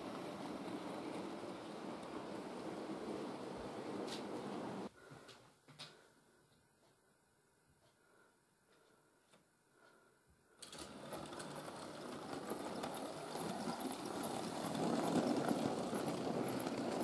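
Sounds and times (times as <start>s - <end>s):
wheels clattering on track: 0.0s - 4.9s, 10.7s - 17.0s
model train motor hum: 10.6s - 17.0s.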